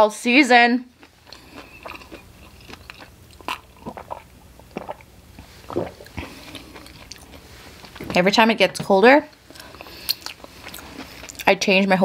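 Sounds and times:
chewing with wet clicks: 1.0 - 5.1, 6.0 - 8.0, 9.3 - 11.6.

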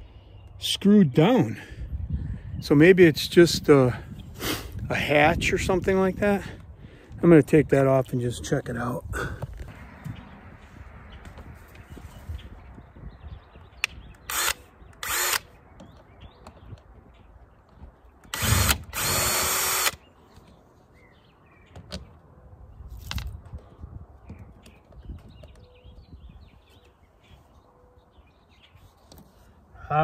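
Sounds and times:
cordless drill backing out screws: 18.3 - 20.0.

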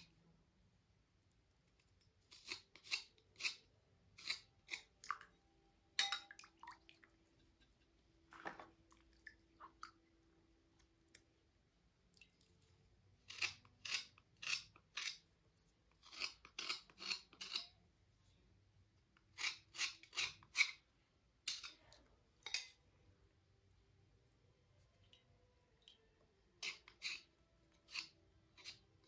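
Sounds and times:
scraping slate cubes: 2.2 - 4.9, 13.2 - 15.3, 16.0 - 17.8, 19.2 - 20.8, 26.6 - 29.0.

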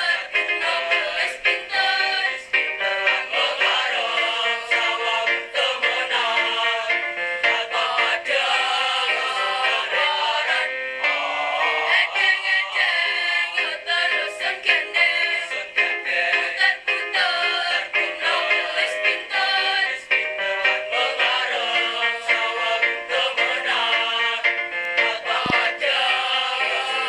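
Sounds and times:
youth choir singing in harmony: 0.0 - 27.0.

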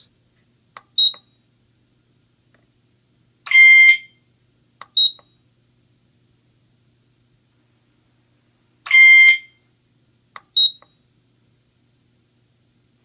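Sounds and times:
short high beep: 8.9 - 9.6.

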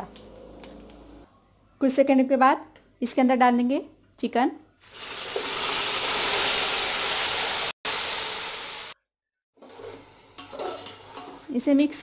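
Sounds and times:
chicken sizzling in hot oil: 4.8 - 9.0.

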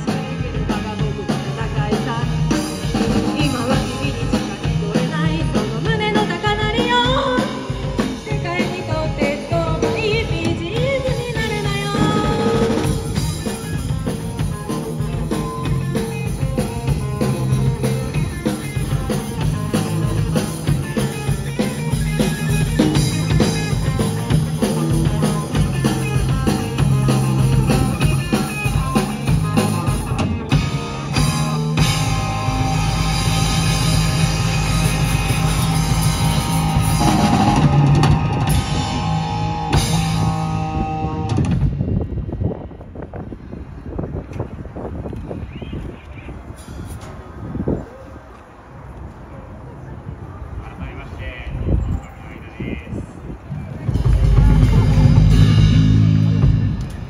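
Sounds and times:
rock band playing: 0.0 - 42.4, 53.7 - 57.0.

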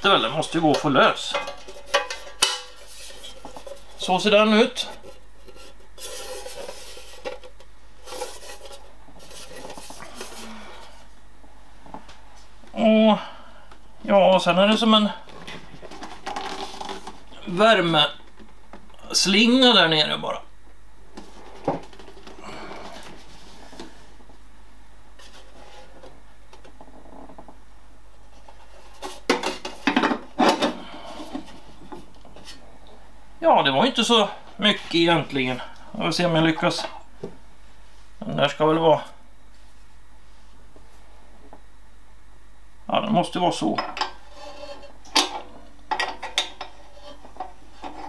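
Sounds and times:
rubbing and scraping: 0.0 - 11.1, 15.4 - 17.3, 44.2 - 45.4, 46.6 - 48.0.

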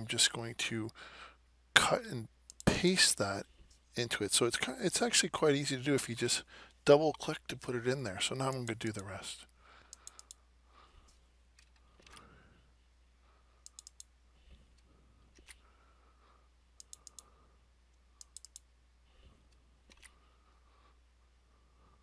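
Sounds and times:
faint low hum: 0.0 - 22.0
mouse and keyboard clicks: 13.6 - 14.1, 16.8 - 17.3, 18.2 - 18.7, 19.5 - 20.2.

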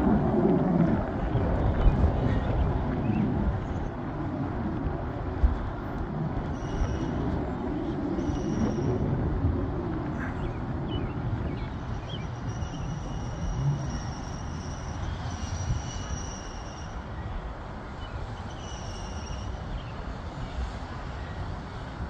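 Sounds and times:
jet engines rumbling: 0.0 - 22.0
high-pitched jet whine: 11.7 - 17.7.

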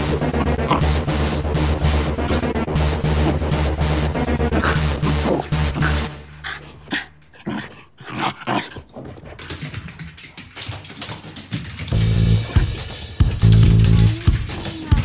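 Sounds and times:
background music: 0.0 - 7.4, 11.9 - 15.0
dog growling: 0.0 - 9.7.

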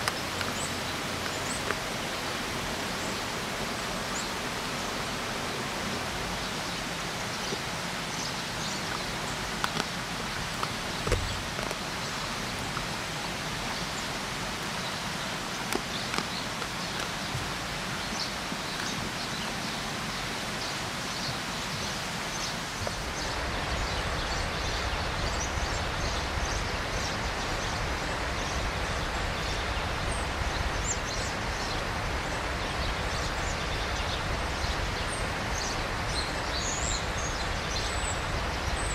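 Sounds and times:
river water rushing: 0.0 - 38.9
small birds chirping: 0.0 - 38.9.

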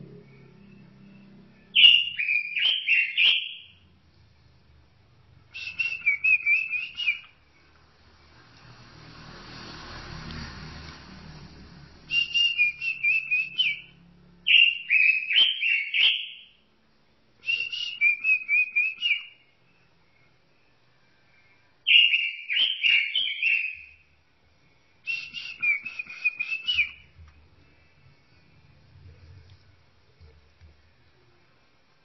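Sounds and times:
bird singing whistled phrases: 0.2 - 3.8, 5.5 - 7.4, 12.1 - 16.6, 17.4 - 19.5, 21.9 - 24.0, 25.1 - 27.2.

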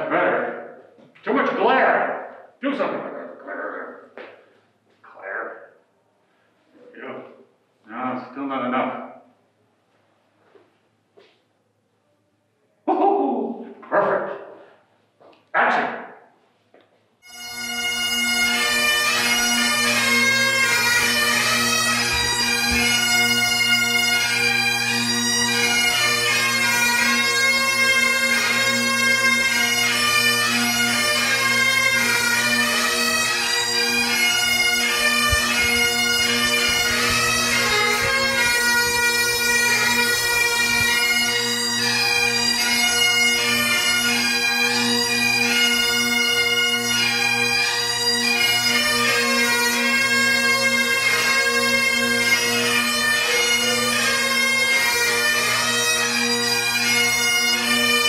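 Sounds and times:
bagpipes playing: 17.2 - 58.0.

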